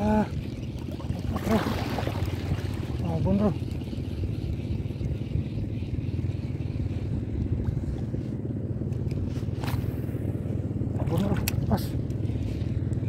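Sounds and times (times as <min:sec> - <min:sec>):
wind buffeting microphone: 0:00.0 - 0:08.8.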